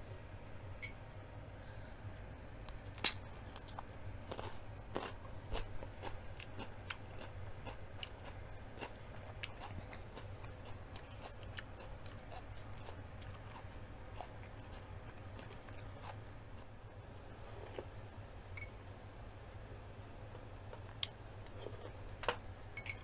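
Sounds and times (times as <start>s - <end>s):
low steady hum: 0.0s - 23.0s
crunchy food chewing: 2.6s - 16.8s.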